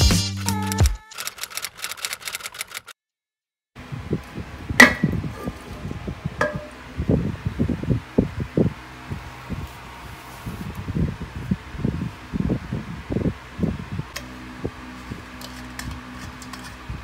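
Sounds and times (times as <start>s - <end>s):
typewriter keys clacking: 0.4s - 3.0s.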